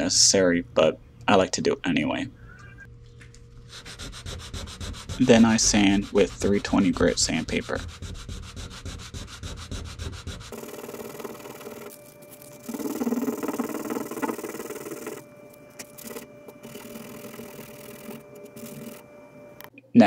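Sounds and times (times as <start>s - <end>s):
faint hum: 0.0s - 20.0s
sandpaper rubbing by hand: 3.7s - 10.7s.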